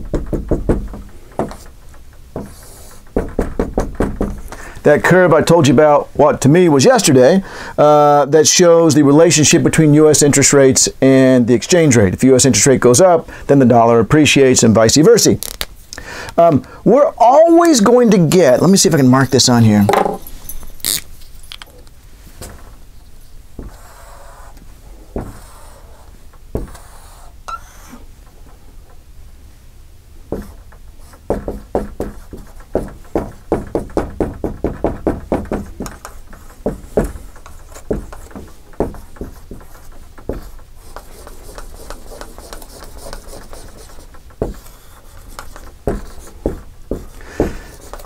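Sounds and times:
marker writing on whiteboard: 0.2s - 1.8s, 2.4s - 5.2s, 23.6s - 28.0s, 30.3s - 48.0s.

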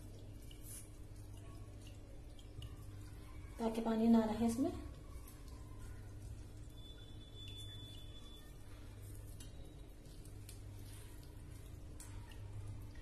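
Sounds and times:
water dripping: 0.0s - 13.0s
wet cloth squishing: 4.4s - 13.0s.

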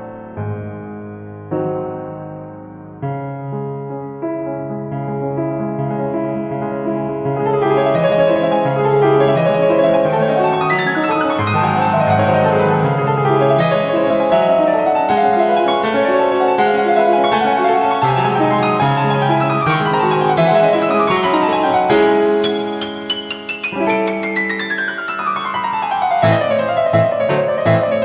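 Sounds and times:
piano music: 0.0s - 28.0s.

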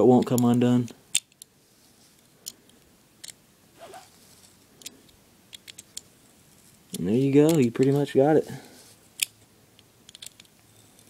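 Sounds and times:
metal parts clicking: 4.8s - 6.1s, 10.1s - 11.0s.

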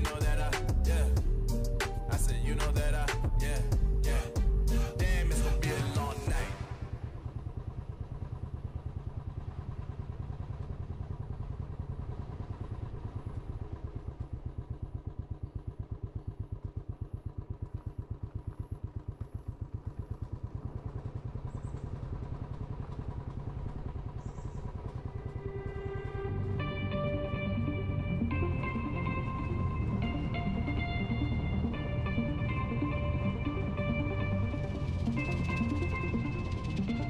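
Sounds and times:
music: 0.0s - 6.9s, 25.0s - 37.0s
motorcycle engine running: 0.0s - 37.0s.

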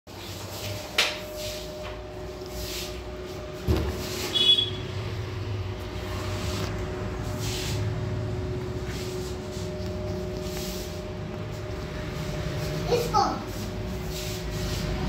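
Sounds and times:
machine hum: 0.3s - 15.0s
short high machine beep: 4.2s - 5.0s.

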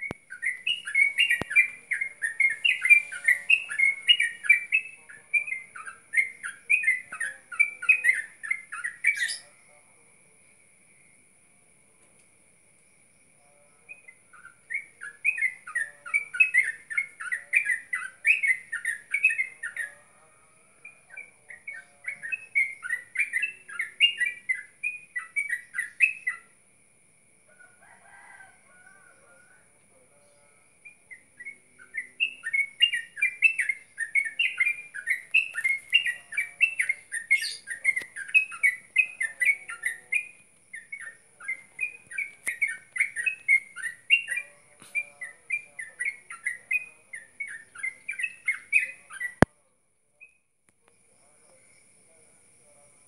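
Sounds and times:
high-pitched hiss: 0.0s - 5.5s
rapid high animal chirps: 0.0s - 9.6s, 13.9s - 20.0s, 20.8s - 26.6s, 30.3s - 49.5s.

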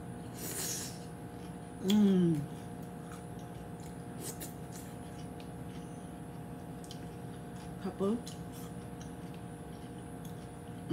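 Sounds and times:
faint steady hum: 0.0s - 10.9s
person humming while eating: 1.8s - 2.7s.

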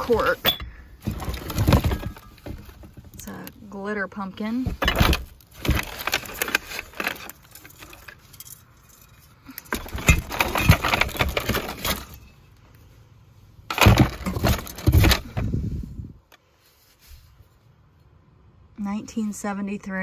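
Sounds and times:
rustling in cardboard box: 1.0s - 3.4s, 4.6s - 8.3s.

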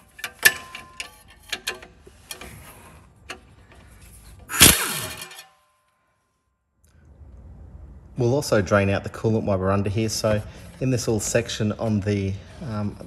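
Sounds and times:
metal tools clinking: 0.0s - 2.6s, 4.6s - 5.8s
rattling burst: 4.5s - 5.4s.

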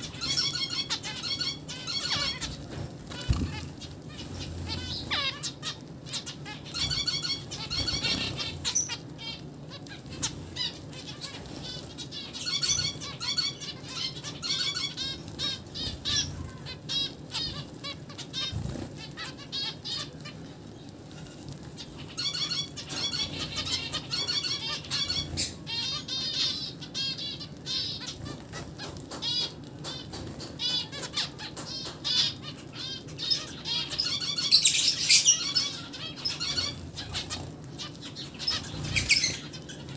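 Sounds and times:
wing flutters: 0.0s - 9.1s
finches chirping: 0.0s - 20.4s, 21.8s - 39.9s
birds pecking at seeds: 0.0s - 39.9s.

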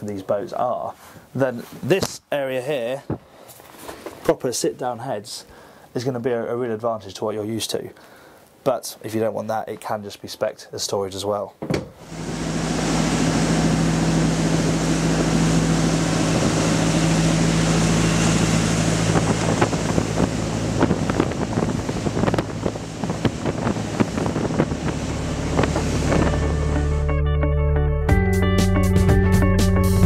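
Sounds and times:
motorboat engine drone: 12.0s - 27.2s
water slapping hull: 12.4s - 27.0s
wind buffeting microphone: 13.2s - 27.0s.

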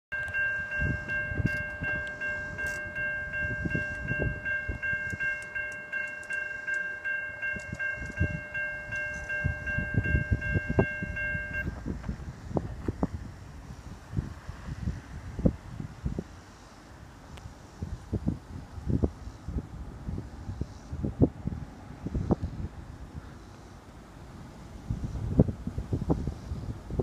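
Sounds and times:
crossing warning bell ringing: 0.1s - 11.8s
wind buffeting microphone: 0.2s - 23.4s, 24.1s - 27.0s.

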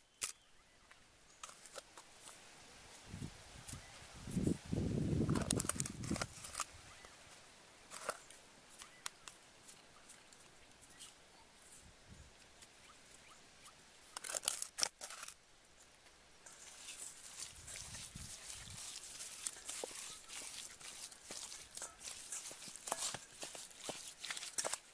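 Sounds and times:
rustle of handling chicken: 15.9s - 24.9s.

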